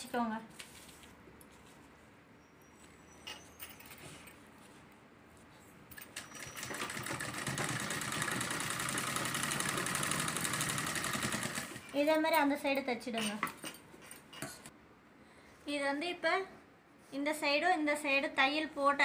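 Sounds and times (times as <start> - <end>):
sewing machine stitching: 6.0 - 12.0.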